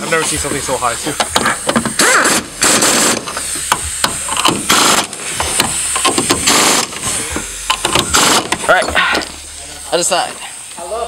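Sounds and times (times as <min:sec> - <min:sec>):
impact gun bursts: 0:01.1 - 0:09.5.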